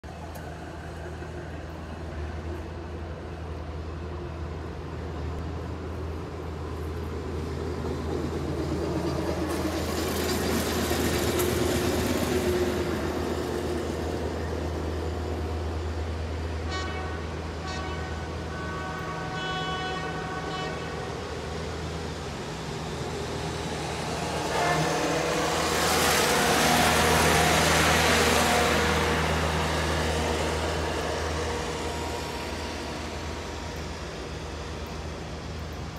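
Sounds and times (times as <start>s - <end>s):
rail equipment rumbling past: 0.0s - 35.9s
high-pitched horn blasts: 16.7s - 21.0s.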